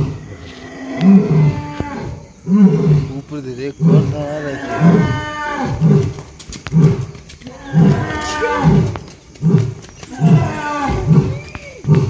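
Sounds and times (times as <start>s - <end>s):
lion roaring: 0.0s - 6.1s, 6.8s - 9.6s.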